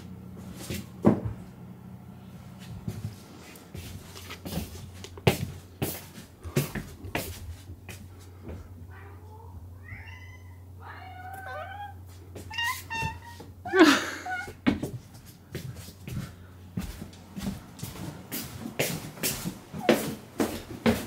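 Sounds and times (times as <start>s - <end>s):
cat meowing: 8.9s - 14.6s.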